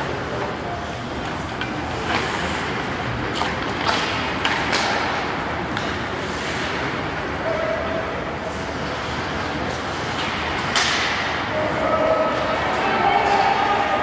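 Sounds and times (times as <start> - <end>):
sticks cracking against puck: 3.3 - 6.8, 10.1 - 11.4.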